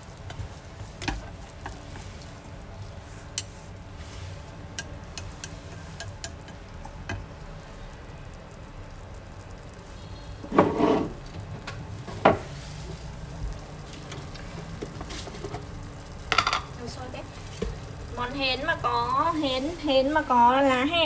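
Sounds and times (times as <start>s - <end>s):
clams stirred in pot: 0.0s - 21.0s
faint crackle: 0.0s - 21.0s
chopsticks clicking against pot: 4.7s - 7.3s.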